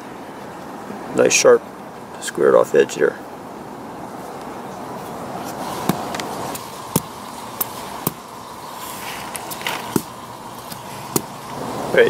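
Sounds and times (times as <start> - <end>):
knife scraping wood: 8.8 - 11.3.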